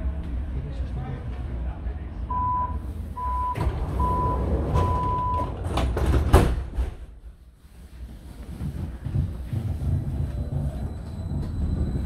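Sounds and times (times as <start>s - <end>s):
train low rumble: 0.0s - 12.0s
door warning beeps: 2.3s - 5.5s
sliding doors banging shut: 3.5s - 7.2s.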